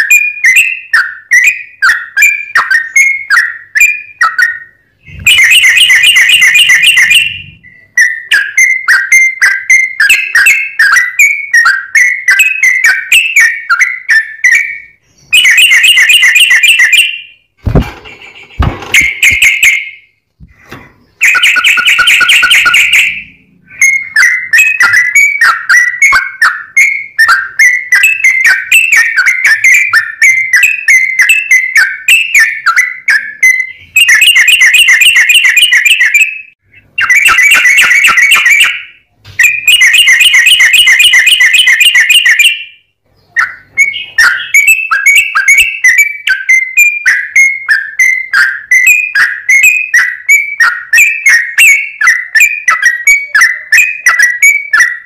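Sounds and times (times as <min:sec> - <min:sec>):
bird singing whistled phrases: 0:00.0 - 0:17.4, 0:18.6 - 0:20.1, 0:21.0 - 0:55.0
dull knocks: 0:17.7 - 0:19.4.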